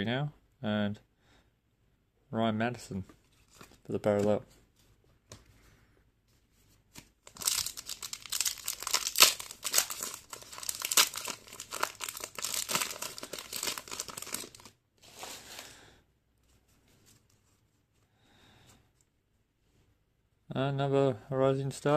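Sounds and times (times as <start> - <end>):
foil wrapper crinkling and tearing: 7.2 - 14.8.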